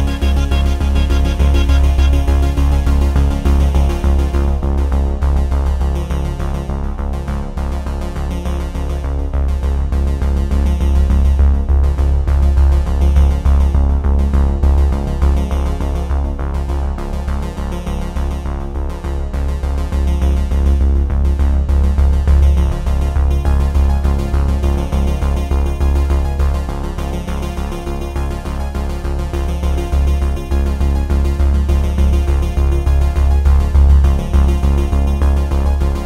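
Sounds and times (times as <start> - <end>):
electronic synthesizer music: 0.0 - 4.7.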